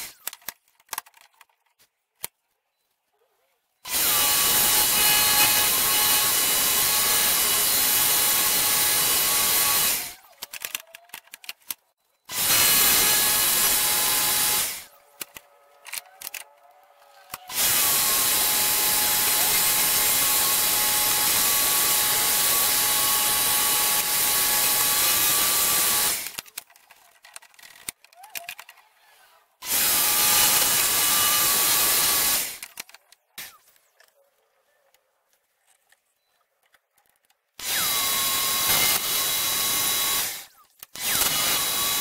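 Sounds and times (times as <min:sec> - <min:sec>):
jigsaw cutting wood: 0:03.9 - 0:10.3, 0:12.3 - 0:15.0, 0:17.3 - 0:26.4, 0:29.6 - 0:32.6, 0:37.6 - 0:42.0.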